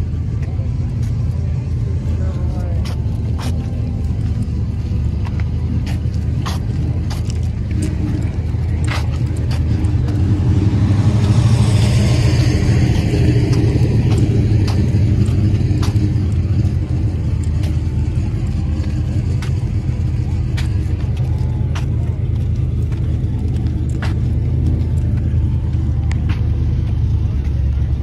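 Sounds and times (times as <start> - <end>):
car engine running: 0.0 - 28.0.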